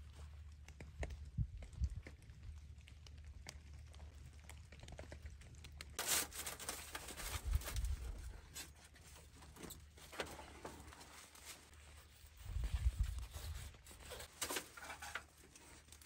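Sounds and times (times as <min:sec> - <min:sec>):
plastic film crinkling: 0:04.5 - 0:16.0.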